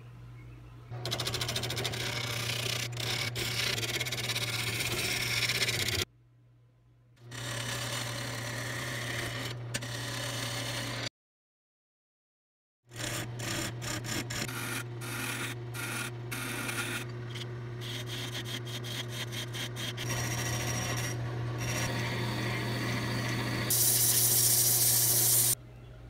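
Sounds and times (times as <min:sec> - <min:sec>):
lathe tool scraping wood: 0:01.0 - 0:06.0, 0:12.9 - 0:25.6
lathe motor hum: 0:16.0 - 0:25.6.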